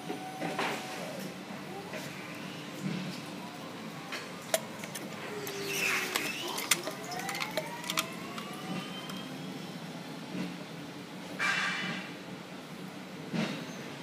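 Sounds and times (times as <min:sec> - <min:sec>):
faint rising whines: 0:05.1 - 0:10.5.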